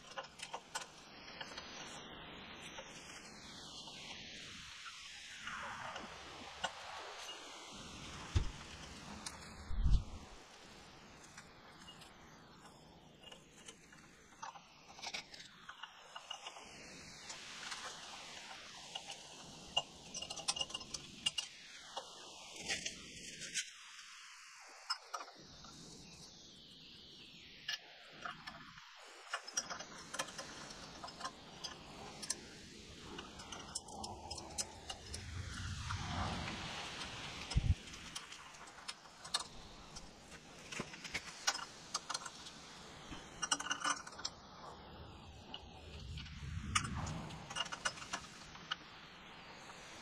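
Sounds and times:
metallic clicks and clinks of tools: 0:17.6 - 0:21.5, 0:43.1 - 0:44.4, 0:46.6 - 0:48.8.

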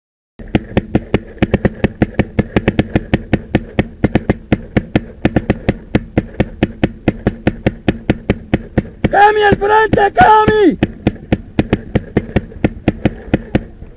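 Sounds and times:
paintball marker firing rapidly: 0:00.4 - 0:13.8.

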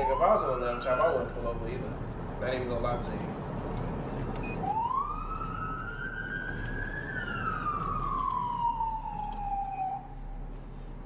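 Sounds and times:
police siren wailing: 0:00.0 - 0:01.8, 0:04.5 - 0:10.5
car road noise: 0:00.0 - 0:11.0.

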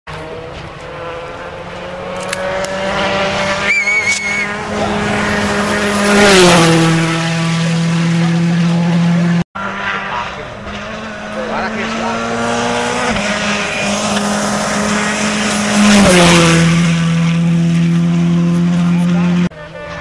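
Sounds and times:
rally car engine passing: 0:00.1 - 0:20.0
high wavering squeal: 0:03.6 - 0:04.6.

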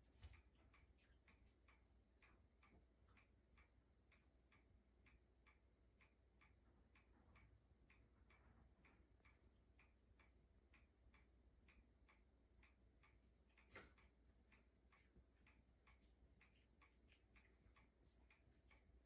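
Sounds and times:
clock ticking: 0:00.0 - 0:19.0.

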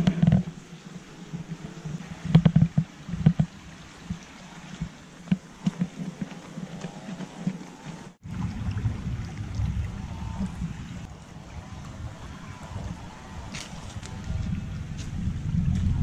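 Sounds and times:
low steady rumble: 0:08.1 - 0:16.0.

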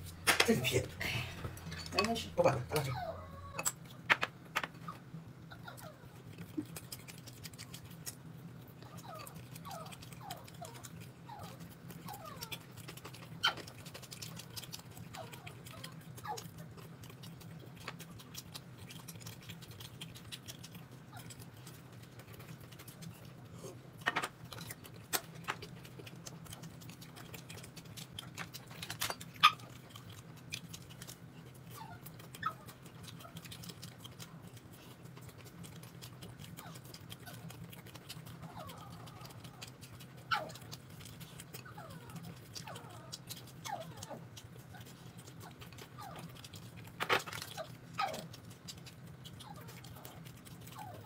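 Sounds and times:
steady low hum: 0:00.0 - 0:51.0
dog whining: 0:02.7 - 0:03.8, 0:04.8 - 0:06.7, 0:08.8 - 0:13.7, 0:29.4 - 0:29.7, 0:31.7 - 0:33.4, 0:38.4 - 0:40.8, 0:41.5 - 0:46.4, 0:47.4 - 0:48.4, 0:49.4 - 0:51.0.

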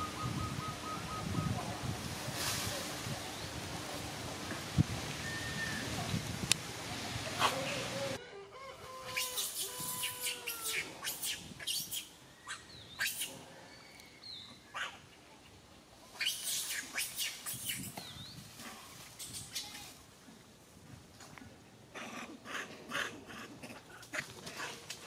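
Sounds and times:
rooster crowing: 0:08.2 - 0:10.7
small birds chirping: 0:09.2 - 0:15.6.

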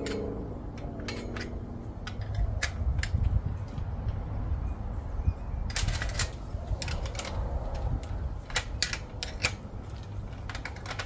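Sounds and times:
wrench clicking on metal: 0:00.0 - 0:03.2, 0:08.5 - 0:09.7.

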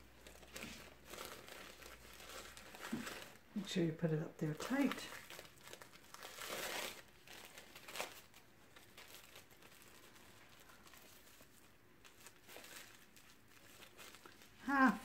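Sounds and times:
faint handling rustles: 0:00.0 - 0:03.8
wrap crinkling: 0:00.0 - 0:15.0.

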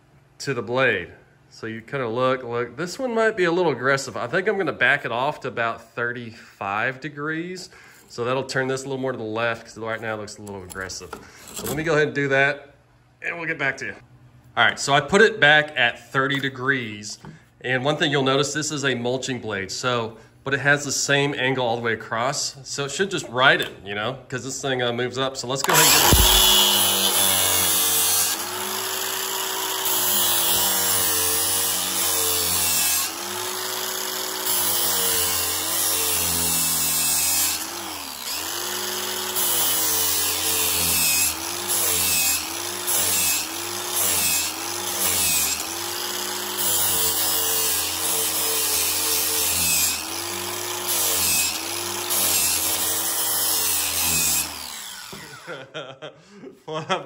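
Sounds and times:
grinder motor: 0:25.6 - 0:55.6.

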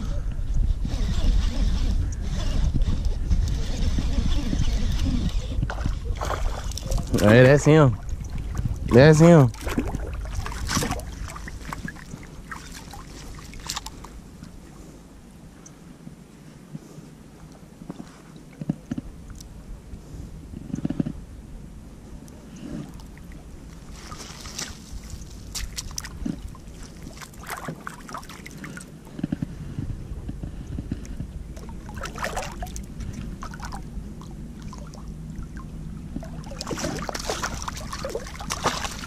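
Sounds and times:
wind rumble on microphone: 0:00.0 - 0:39.0
water splashing and sloshing: 0:04.0 - 0:14.9, 0:22.5 - 0:29.4, 0:31.1 - 0:39.0.

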